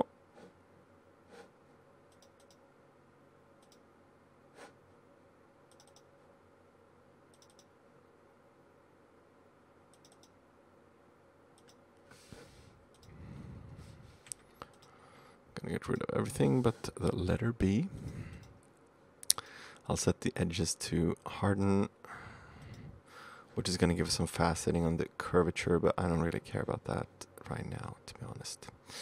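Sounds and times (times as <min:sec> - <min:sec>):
computer mouse clicks: 0:02.1 - 0:02.6, 0:03.6 - 0:03.8, 0:05.7 - 0:06.1, 0:07.3 - 0:07.7, 0:09.9 - 0:10.4, 0:11.6 - 0:11.8, 0:12.9 - 0:13.2, 0:14.3 - 0:15.0.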